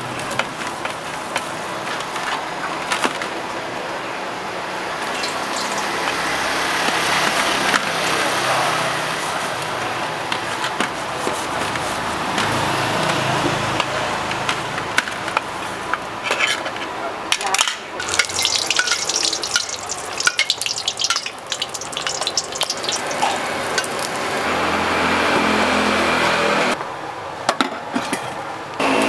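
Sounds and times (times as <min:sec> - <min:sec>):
hot oil crackling and spattering: 0:05.0 - 0:06.8, 0:18.0 - 0:24.4.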